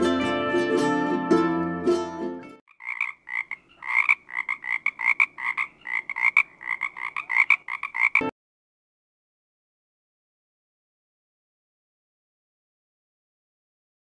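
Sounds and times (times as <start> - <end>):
frogs croaking in short pulses: 2.7 - 8.3.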